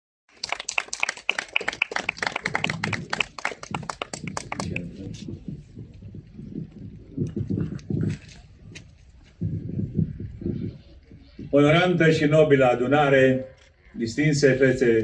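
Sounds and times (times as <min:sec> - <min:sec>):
crowd clapping: 0:00.3 - 0:05.5
low uneven rumble: 0:02.1 - 0:11.8.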